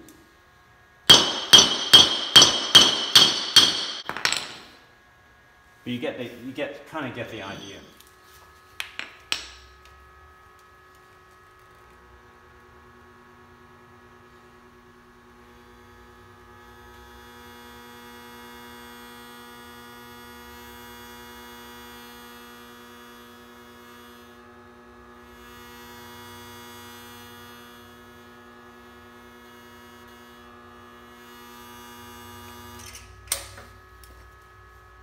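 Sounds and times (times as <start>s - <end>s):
induction heater buzzing hum: 0.0s - 10.9s.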